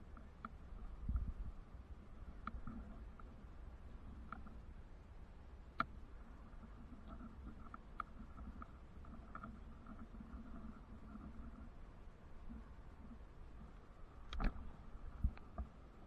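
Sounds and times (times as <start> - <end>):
faint low rumble: 0.0 - 16.0
light clicks: 2.4 - 3.3, 13.6 - 15.7.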